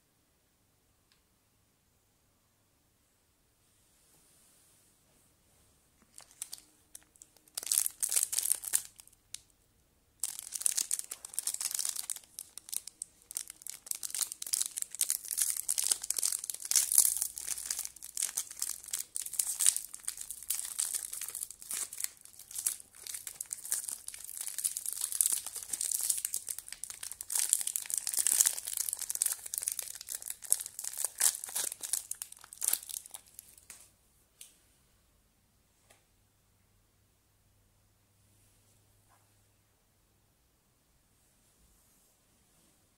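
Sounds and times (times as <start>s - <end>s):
plastic wrapper crinkling and tearing: 6.1s - 9.4s, 10.2s - 33.8s.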